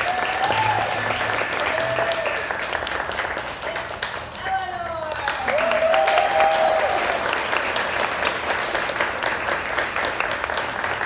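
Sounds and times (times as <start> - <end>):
person cheering: 0.0 - 2.5, 5.4 - 7.2
audience clapping: 0.0 - 11.0.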